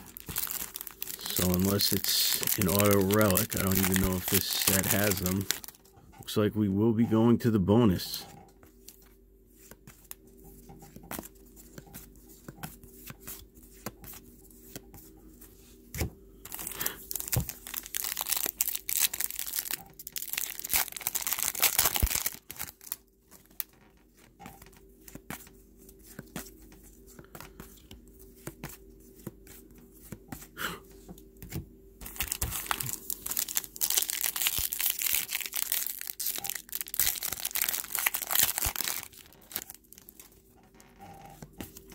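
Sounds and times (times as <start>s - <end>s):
plastic wrapper crinkling and tearing: 0.0s - 5.9s, 16.5s - 23.9s, 32.0s - 40.9s.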